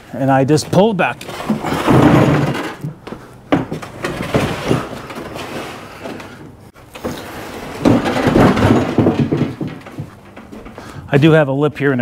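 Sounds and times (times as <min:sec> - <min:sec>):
cart wheels rumbling on concrete: 0:00.4 - 0:11.4
loud clatter: 0:01.3 - 0:02.9, 0:07.0 - 0:10.7.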